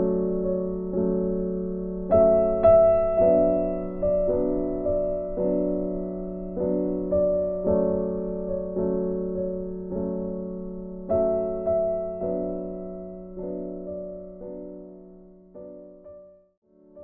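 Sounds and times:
slow soft piano chords: 0.0s - 17.0s.

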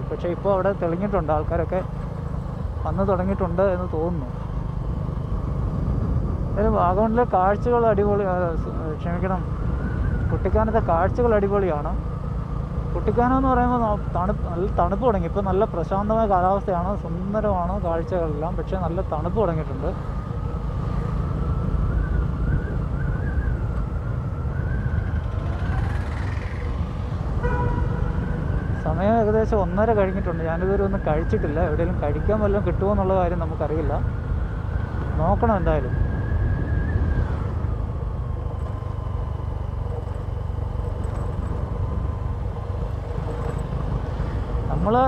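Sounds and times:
wind rumble on microphone: 4.7s - 11.5s, 34.4s - 40.2s
motorcycle engine running: 9.2s - 29.6s, 37.5s - 45.0s.

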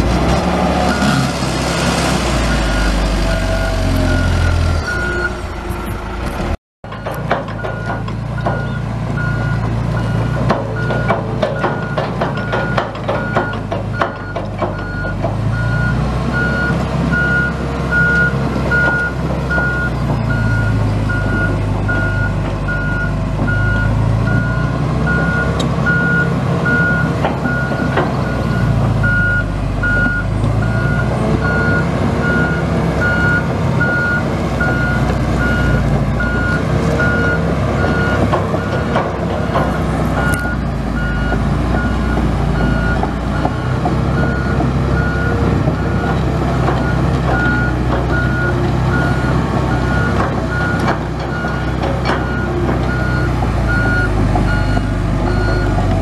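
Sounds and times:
excavator diesel engine working: 0.0s - 56.0s.

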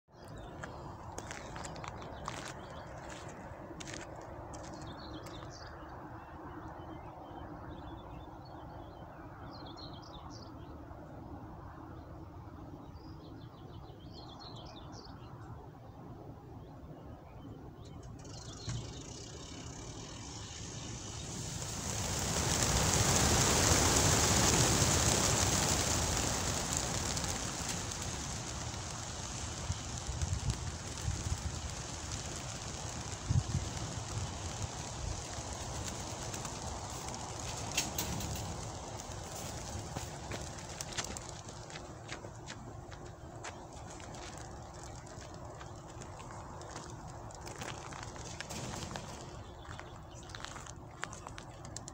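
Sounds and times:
small birds chirping: 0.1s - 10.8s, 16.6s - 51.9s
pigeon wings whirring: 18.3s - 50.7s.

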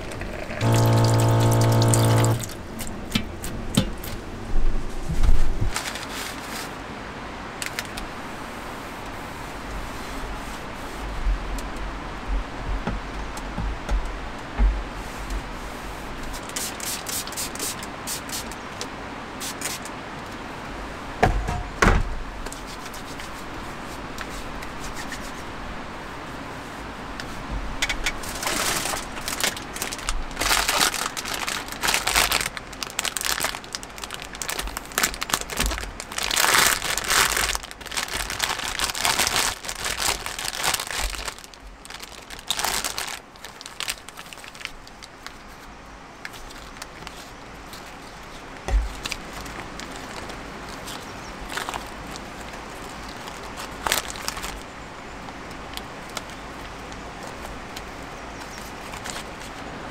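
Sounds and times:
crinkling and rustling: 0.0s - 6.9s, 7.6s - 8.1s, 27.2s - 54.7s, 55.3s - 59.7s.

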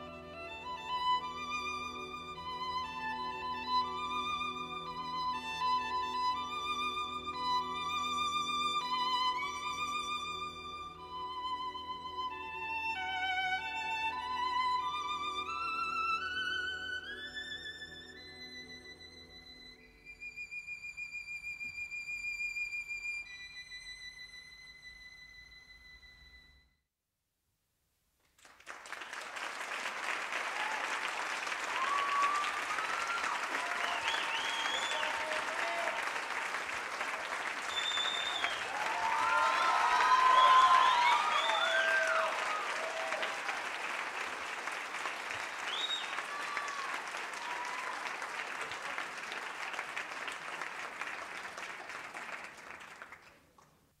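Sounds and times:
audience applause: 28.4s - 53.4s
high whistles: 31.6s - 36.0s, 37.5s - 42.8s, 45.6s - 46.9s.

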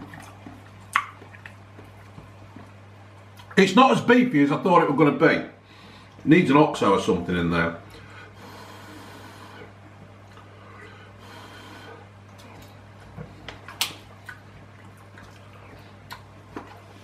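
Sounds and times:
man chewing: 0.0s - 3.6s, 7.9s - 17.0s
steady low hum: 0.0s - 17.0s
breathing: 5.6s - 6.2s, 7.9s - 9.7s, 10.5s - 12.1s.

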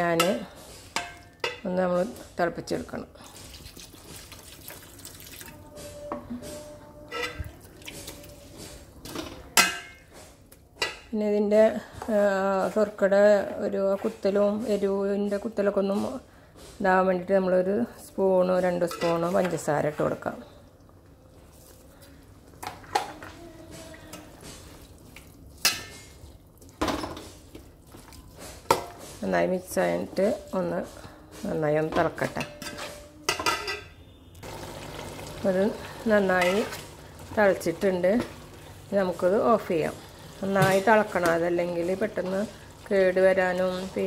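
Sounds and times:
metal spatula scraping a pan: 6.3s - 7.6s, 32.2s - 34.0s, 36.3s - 36.8s
spatula scraping metal pan: 32.2s - 33.8s.

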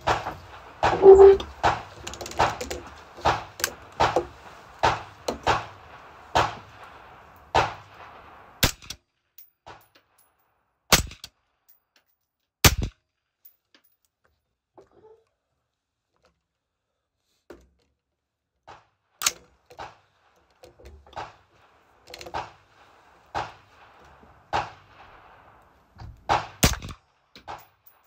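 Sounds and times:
suppressed rifle gunshots: 26.3s - 27.6s.

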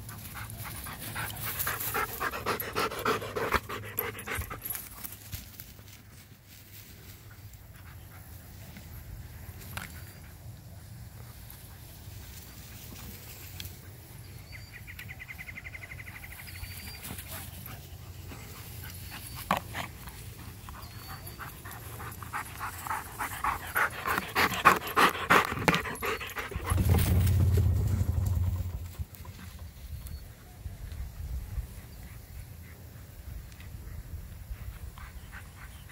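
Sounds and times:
dog panting hard: 0.0s - 4.9s, 17.3s - 27.0s
low steady rumble: 26.4s - 29.4s.

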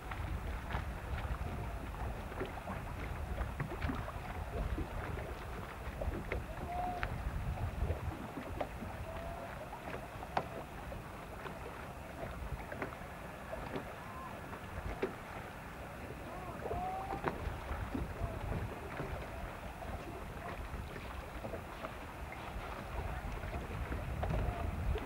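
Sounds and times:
wind buffeting microphone: 0.0s - 9.6s, 16.4s - 25.0s
water lapping and splashing: 0.0s - 25.0s.

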